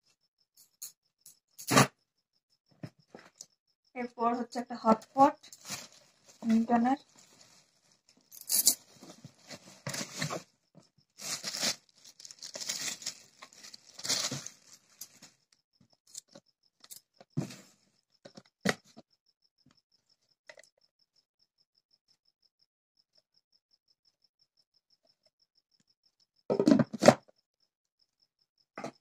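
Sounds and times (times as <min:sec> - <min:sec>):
cardboard and plastic bag rustling: 0:05.4 - 0:08.2, 0:08.8 - 0:10.5, 0:11.2 - 0:15.4
plastic container knocks: 0:26.5 - 0:27.2.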